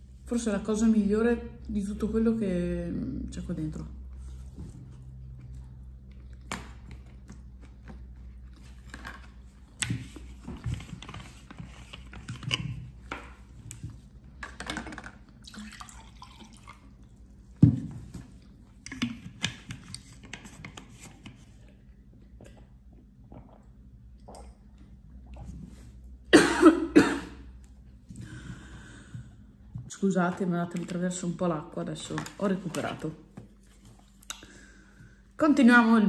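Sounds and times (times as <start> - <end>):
person gulping water: 15.3 - 17.3, 22.2 - 25.6.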